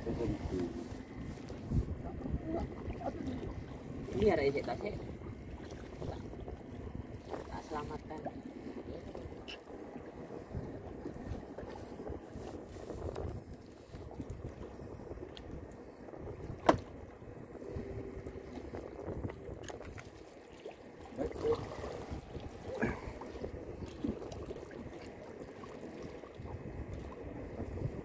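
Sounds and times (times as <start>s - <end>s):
water lapping around a boat: 0.0s - 28.0s
wind on microphone: 0.0s - 28.0s
knocks on a boat: 16.6s - 16.9s.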